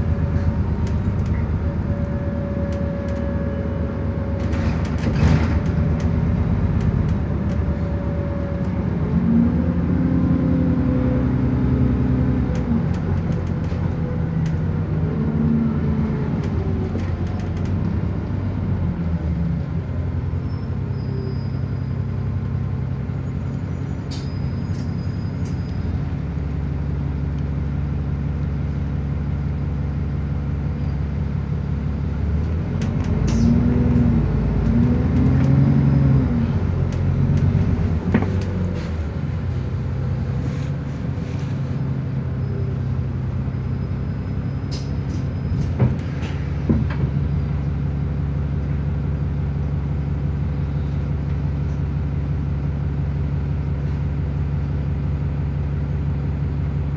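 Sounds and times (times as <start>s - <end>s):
bus engine drone: 0.0s - 56.9s.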